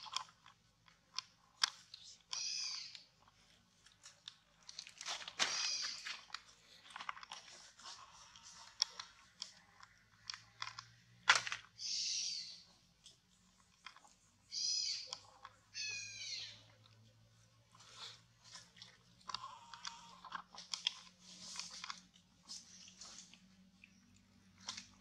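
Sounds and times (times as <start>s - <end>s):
infant monkey crying: 5.5s - 6.0s, 11.8s - 12.6s, 14.5s - 15.2s, 15.8s - 16.7s.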